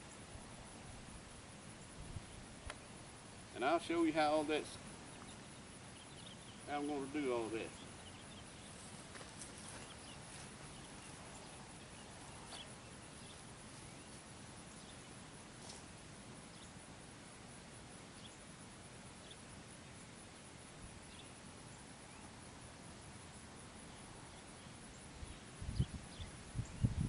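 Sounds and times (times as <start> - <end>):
steady low hiss: 0.0 - 27.0
faint ticks and clicks: 2.6 - 2.8.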